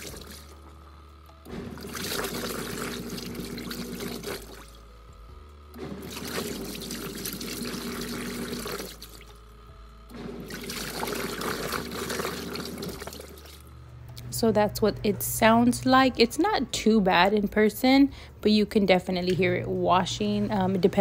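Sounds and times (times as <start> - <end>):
water and clothes churning: 0.0 - 0.5, 1.7 - 4.6, 5.9 - 9.3, 10.4 - 13.6
washing machine motor hum: 0.0 - 21.0.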